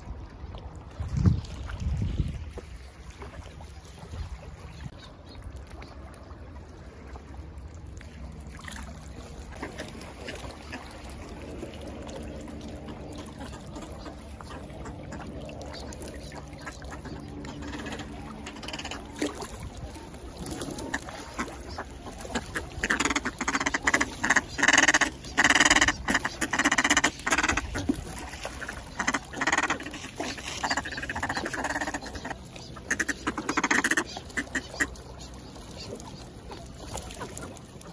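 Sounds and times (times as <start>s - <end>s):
ducks calling softly: 12.6s - 37.9s
ducks quacking rapidly: 20.8s - 28.0s, 28.6s - 35.0s.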